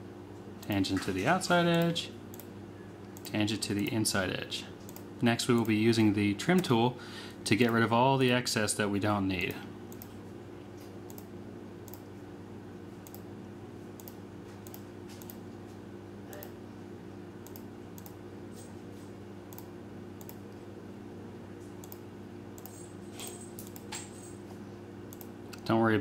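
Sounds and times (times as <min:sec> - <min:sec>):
steady low hum: 0:00.0 - 0:26.0
computer mouse clicking: 0:04.9 - 0:05.7, 0:11.1 - 0:11.3, 0:11.9 - 0:12.1, 0:13.0 - 0:13.2, 0:14.0 - 0:15.4, 0:17.4 - 0:18.2, 0:19.5 - 0:20.4, 0:21.8 - 0:22.0, 0:22.6 - 0:22.8, 0:25.1 - 0:25.3.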